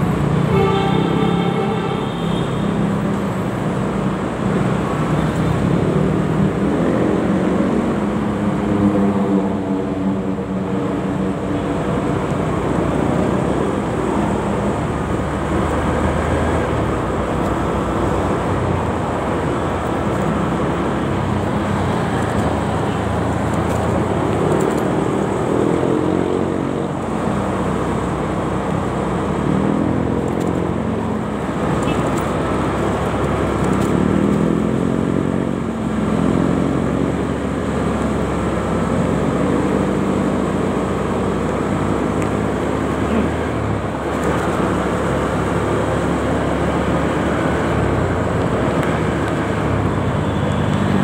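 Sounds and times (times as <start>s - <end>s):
traffic engines revving: 0.0s - 51.0s.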